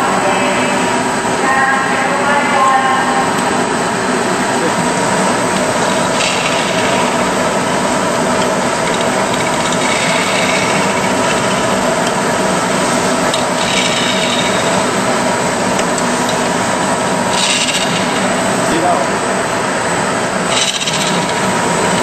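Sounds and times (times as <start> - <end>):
grinder wheels rasping: 8.3 - 12.1, 13.2 - 15.0, 15.8 - 18.4, 20.5 - 22.0.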